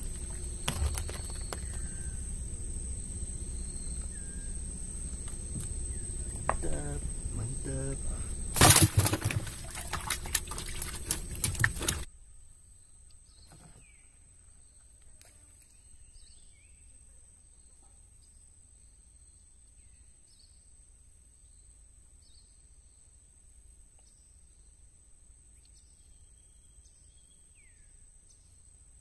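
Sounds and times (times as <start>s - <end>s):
faint bird chirps: 0.0s - 8.6s
high-pitched whine: 0.0s - 9.4s
fish thrashing in wooden hold: 0.0s - 12.1s.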